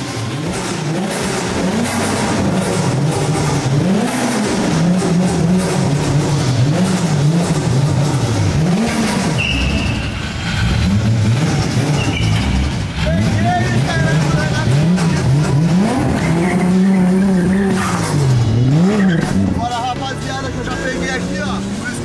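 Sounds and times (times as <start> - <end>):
car engine revving: 0.0 - 22.0
short high squeal: 9.2 - 10.6, 11.9 - 12.8.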